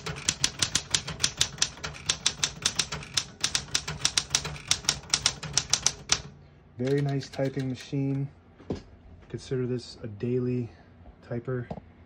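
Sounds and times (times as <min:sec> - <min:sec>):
manual typewriter typing: 0:00.0 - 0:08.3.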